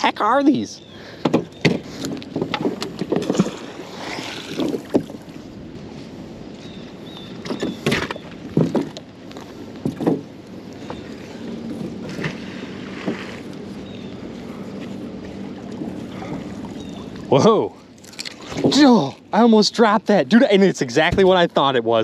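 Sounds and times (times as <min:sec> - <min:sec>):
wind and water wash: 0:00.0 - 0:22.0
sharp knocks and thumps: 0:01.2 - 0:03.7, 0:07.4 - 0:09.0, 0:09.8 - 0:10.3.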